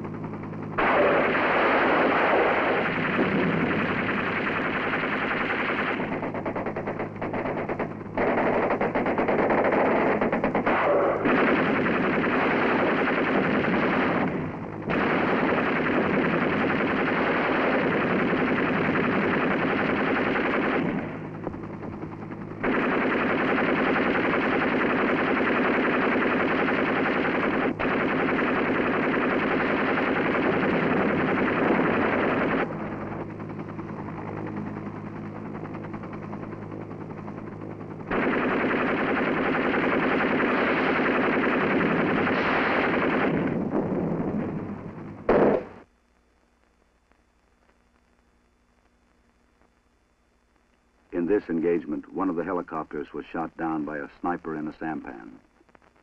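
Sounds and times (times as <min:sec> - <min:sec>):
steady low hum: 0:00.0 - 0:56.0
machine guns firing bursts: 0:00.8 - 0:21.3, 0:22.0 - 0:33.2, 0:38.0 - 0:43.6.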